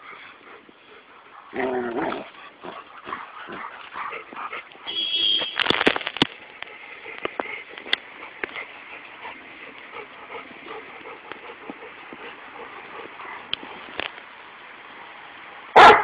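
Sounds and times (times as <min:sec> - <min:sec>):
dog panting: 0:00.0 - 0:04.9, 0:06.6 - 0:13.9.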